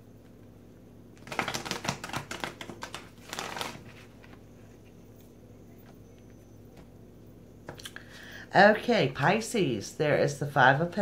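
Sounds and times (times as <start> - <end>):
cards being shuffled: 1.2 - 4.4.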